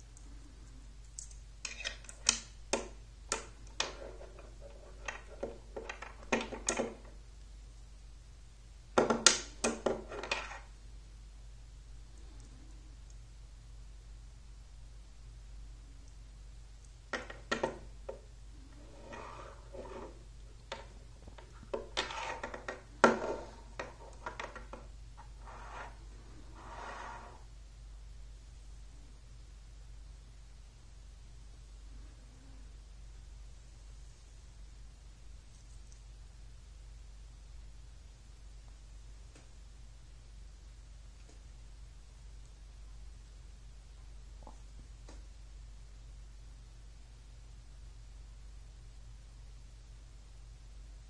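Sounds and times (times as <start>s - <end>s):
metal scraping rubs: 18.7s - 20.2s, 21.9s - 23.8s, 25.2s - 27.5s.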